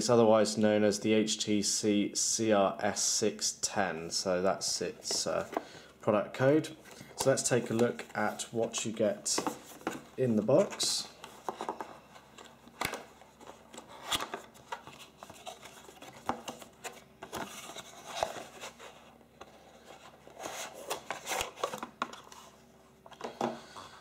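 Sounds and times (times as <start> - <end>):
cardboard scraping and rustling: 13.2 - 22.6.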